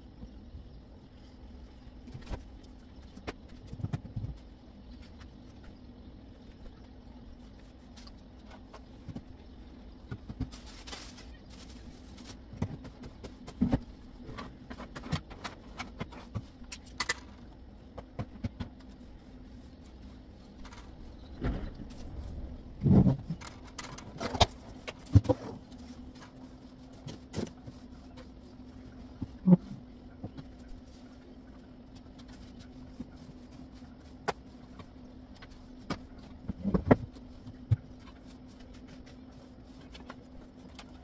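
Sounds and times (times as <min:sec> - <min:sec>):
steady low hum: 0:00.0 - 0:41.0
broom on a tiled floor: 0:10.5 - 0:12.5.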